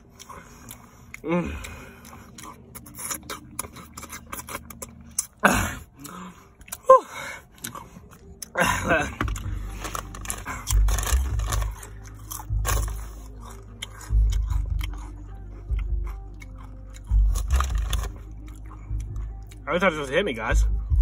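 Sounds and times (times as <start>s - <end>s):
chips crunching: 0.0s - 6.9s, 7.5s - 15.1s, 16.4s - 18.8s.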